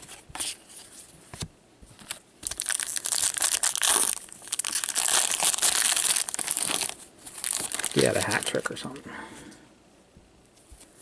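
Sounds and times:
foil wrapper tearing and crinkling: 0:02.4 - 0:08.7.

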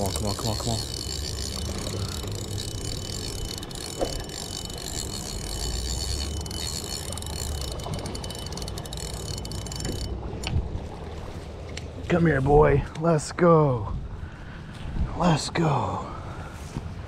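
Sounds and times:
fishing reel cranking: 0:00.0 - 0:10.2
fine reel clicks: 0:00.0 - 0:10.6.

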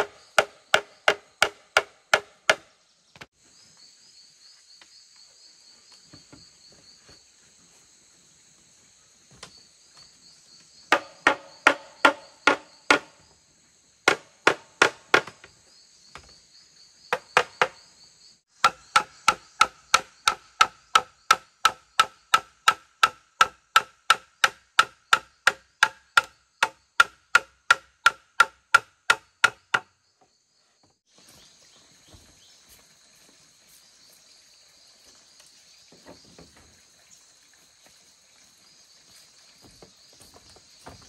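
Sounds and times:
chopping on bamboo: 0:00.0 - 0:03.3, 0:10.9 - 0:13.2, 0:14.1 - 0:15.5, 0:17.1 - 0:17.8, 0:18.6 - 0:29.9
high insect drone: 0:00.0 - 0:23.5, 0:28.3 - 0:41.0.

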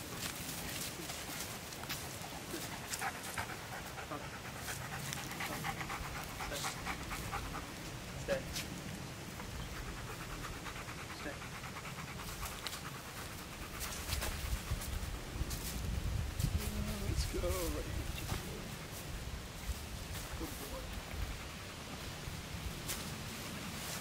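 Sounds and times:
dog panting: 0:00.0 - 0:08.6, 0:09.2 - 0:15.6, 0:20.4 - 0:22.2.

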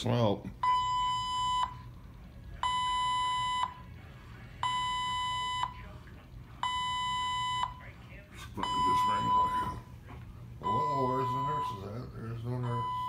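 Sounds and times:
faint low hum: 0:00.0 - 0:13.0
high steady alarm beep: 0:00.6 - 0:02.0, 0:02.6 - 0:03.9, 0:04.6 - 0:05.9, 0:06.6 - 0:08.0, 0:08.6 - 0:09.9, 0:10.6 - 0:13.0.

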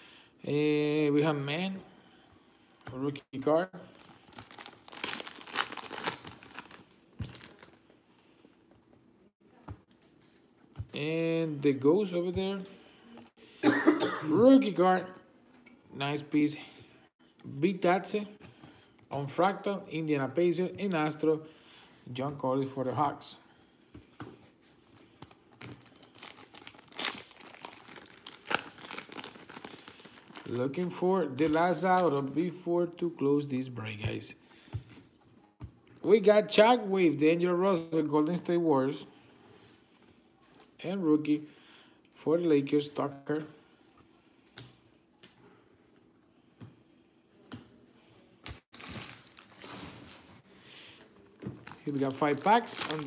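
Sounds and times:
foil wrapper crinkling and tearing: 0:04.0 - 0:07.8, 0:25.3 - 0:32.1, 0:48.7 - 0:50.4, 0:51.6 - 0:53.0.

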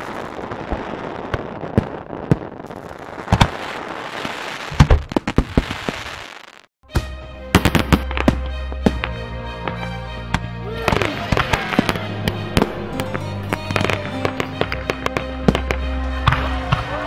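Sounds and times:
fireworks bangs: 0:00.0 - 0:06.7, 0:07.5 - 0:09.2, 0:10.8 - 0:17.0
fireworks hissing and crackling: 0:00.0 - 0:06.7.

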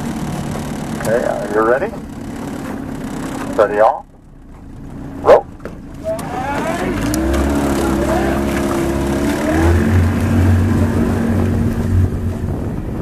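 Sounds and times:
outboard motor running: 0:00.0 - 0:13.0
wind noise on microphone: 0:09.2 - 0:13.0.

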